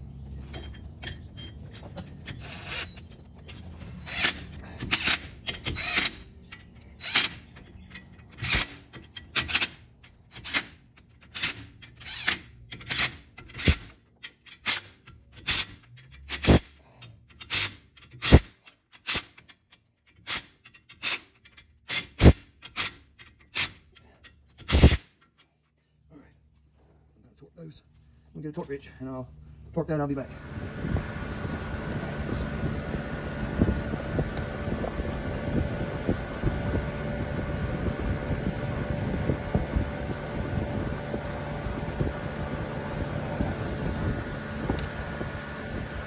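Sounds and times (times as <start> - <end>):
hand ratchet rasping: 4.0 - 25.6
low steady hum: 21.4 - 46.0.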